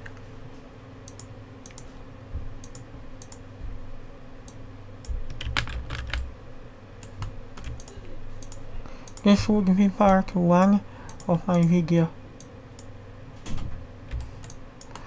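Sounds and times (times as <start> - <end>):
keyboard keys tapping: 5.1 - 6.3, 7.0 - 9.2.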